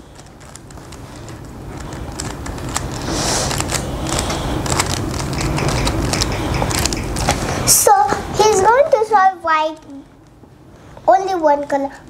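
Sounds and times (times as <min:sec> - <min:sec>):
low rubbing noise: 0:00.0 - 0:11.4
plastic puzzle cube clicking: 0:00.2 - 0:07.4.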